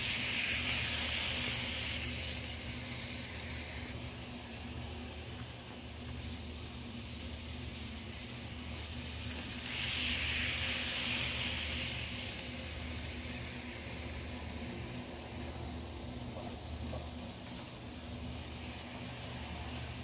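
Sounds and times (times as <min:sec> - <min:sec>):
model train whirring on track: 0:00.0 - 0:20.0
steady low hum: 0:00.0 - 0:20.0.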